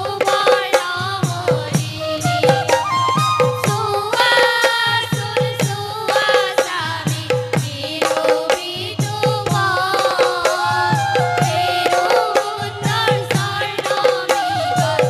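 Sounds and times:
women singing together: 0.0s - 15.0s
bamboo flute: 2.0s - 3.8s, 10.6s - 13.0s, 14.4s - 15.0s.

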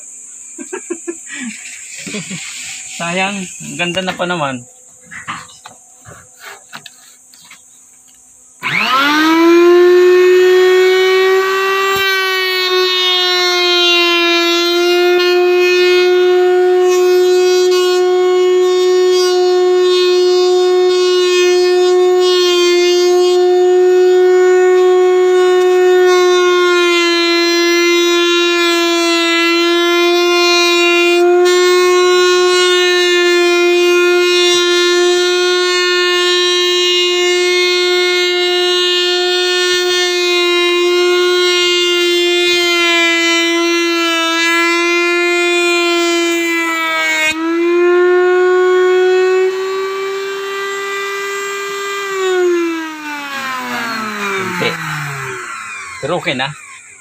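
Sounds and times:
router whining cutting wood: 1.2s - 57.0s.

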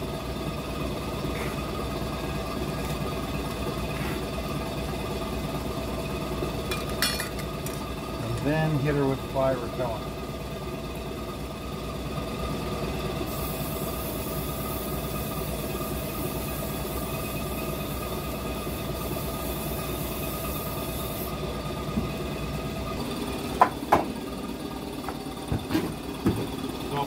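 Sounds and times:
aerosol spray hiss: 13.3s - 21.3s.

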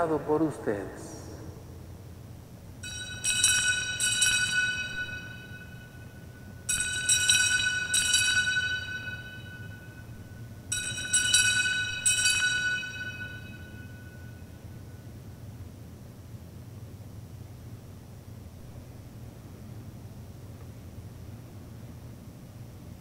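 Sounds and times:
bells ringing: 2.8s - 14.6s.

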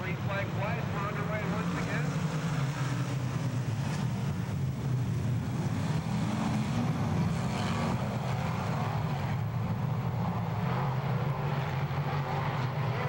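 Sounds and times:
race car engines droning: 0.0s - 13.0s.

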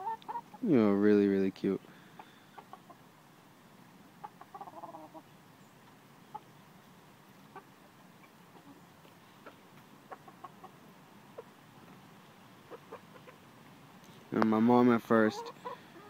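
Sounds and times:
chickens clucking softly: 0.0s - 0.8s, 2.2s - 3.2s, 4.1s - 13.6s, 15.1s - 16.0s.

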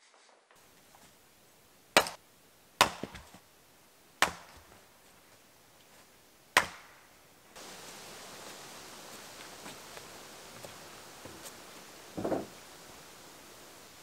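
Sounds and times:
axe chopping wood: 2.0s - 2.2s, 2.8s - 3.4s, 4.2s - 4.7s, 6.6s - 7.0s.

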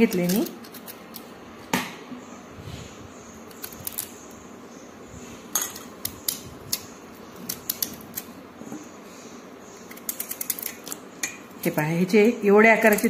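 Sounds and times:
knife cutting potatoes: 0.0s - 1.3s.

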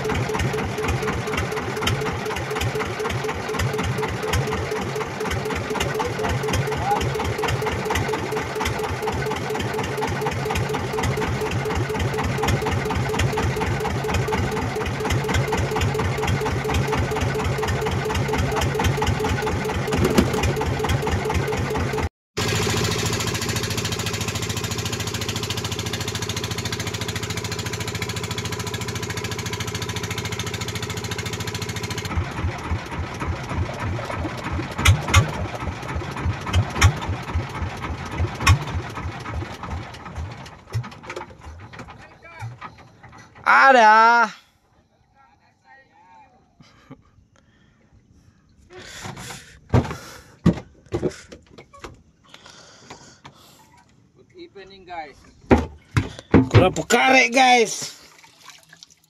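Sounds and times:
boat engine thumping: 0.0s - 44.1s, 55.2s - 57.3s.

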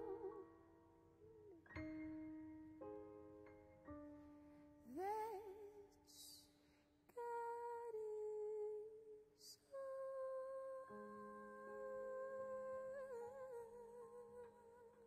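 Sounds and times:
woman singing wordless notes: 0.0s - 0.8s, 4.9s - 6.4s, 7.1s - 15.0s
soft jazz piano: 0.0s - 6.6s.

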